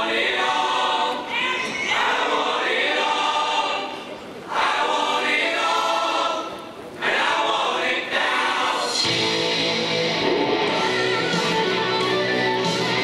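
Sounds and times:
rock band with electric guitar: 9.0 - 13.0.

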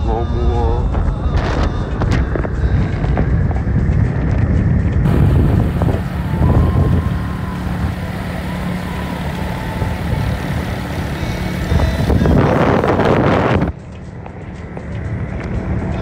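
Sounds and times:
vehicle engine and road noise: 0.0 - 16.0
wind rushing: 3.1 - 13.7.

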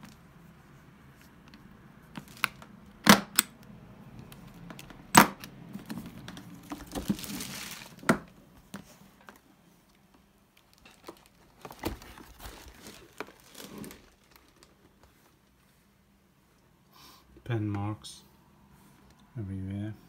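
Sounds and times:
rustling: 5.7 - 16.2.

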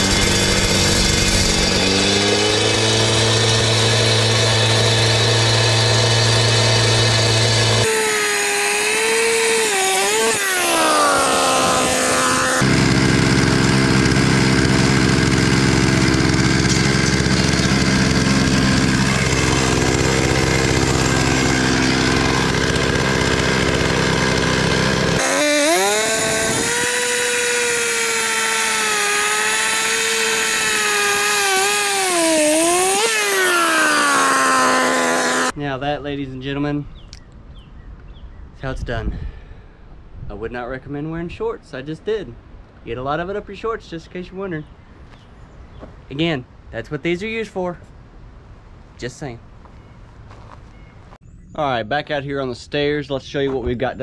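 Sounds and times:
cut-off saw cutting concrete: 0.0 - 35.6.

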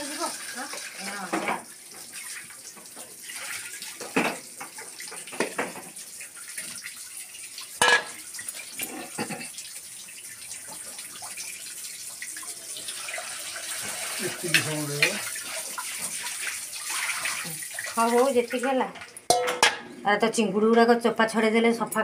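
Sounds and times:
water splashing into metal bowl: 3.2 - 9.6, 12.2 - 19.8
knocks against metal bowl: 19.3 - 19.8.

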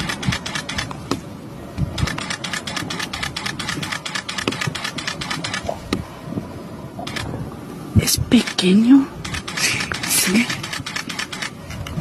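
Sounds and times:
rapid mechanical clicking: 2.0 - 5.7, 9.2 - 11.6.

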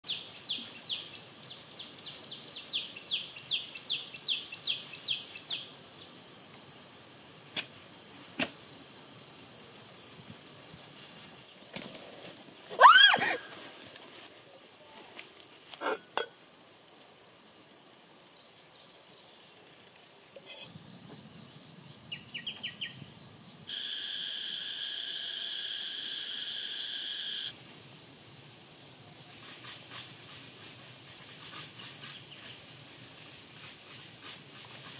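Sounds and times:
high insect-like buzz: 18.3 - 27.6
sweeping rise-and-fall call: 23.7 - 27.5.

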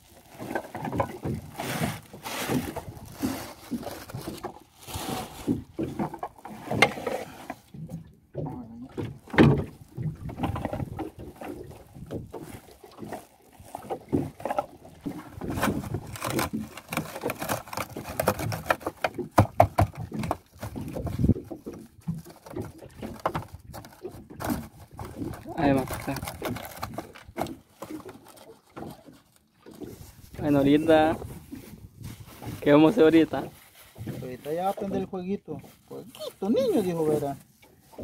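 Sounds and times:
plastic sack rustling: 0.0 - 7.5, 12.4 - 19.0, 23.8 - 28.4, 29.8 - 34.9.

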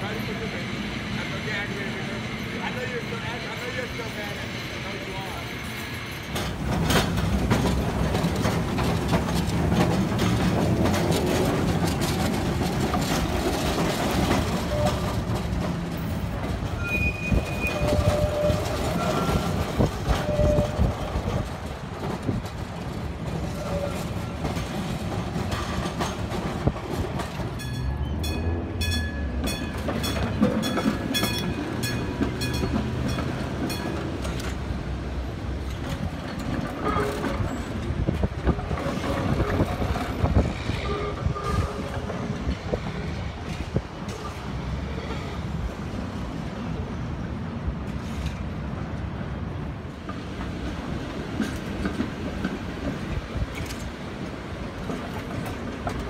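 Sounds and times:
steel wheels rumbling on rails: 0.0 - 56.0
wheels clicking over rail joints: 6.3 - 45.2, 47.8 - 56.0
wheels squealing on curved track: 16.8 - 21.0.

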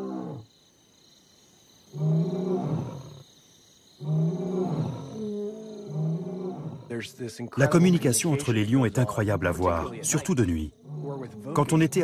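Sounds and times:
lion roaring: 0.0 - 0.5, 4.0 - 7.0, 10.8 - 11.9.

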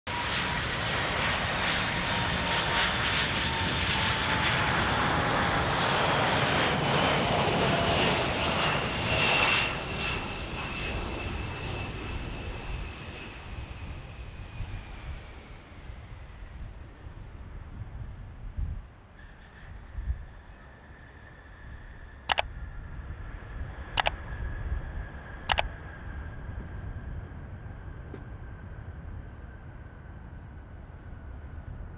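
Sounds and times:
jet plane passing by: 0.1 - 17.5.

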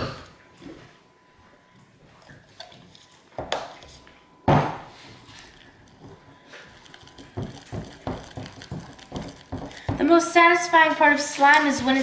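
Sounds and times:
spatula stirring sticky slime: 4.9 - 10.5.

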